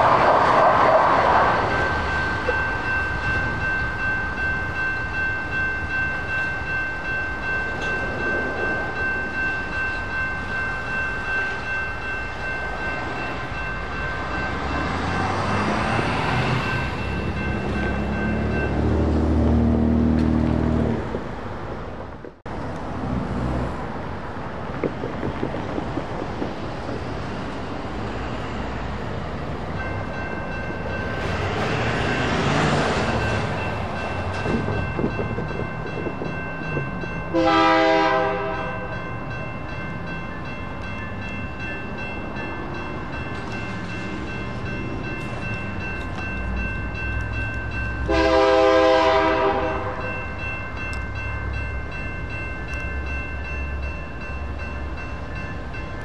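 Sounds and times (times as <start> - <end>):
crossing warning bell ringing: 0.0 - 21.4, 23.8 - 56.0
road traffic passing: 0.0 - 56.0
train horn blasts: 37.3 - 38.9, 48.0 - 50.1.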